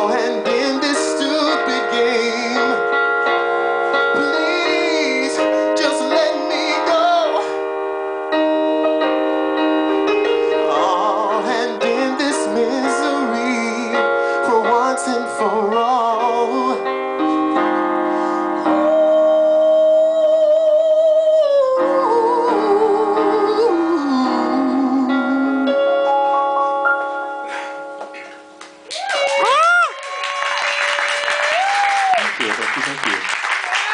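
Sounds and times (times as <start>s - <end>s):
man singing with vibrato: 0.0s - 7.6s, 10.4s - 26.1s
electric keyboard chords: 0.0s - 28.9s.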